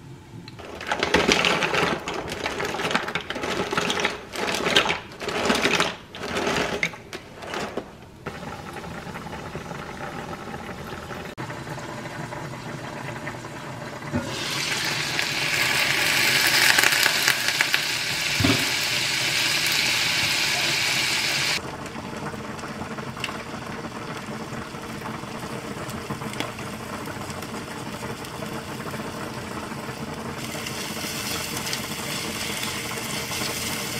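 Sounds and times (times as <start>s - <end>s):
pot of pasta boiling: 0.5s - 33.9s
meatballs sizzling in frying pan: 14.2s - 21.6s, 23.3s - 33.9s.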